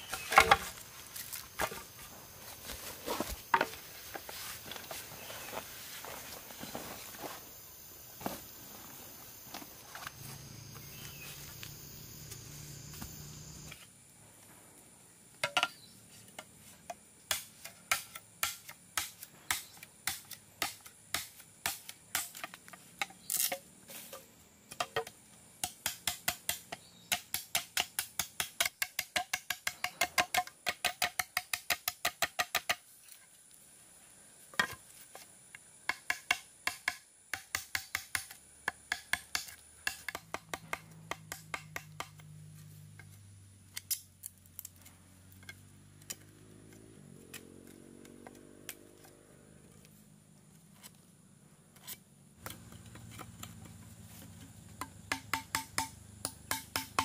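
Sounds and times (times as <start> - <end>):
knife chopping bamboo: 17.3 - 23.6, 35.9 - 42.3, 54.2 - 57.0.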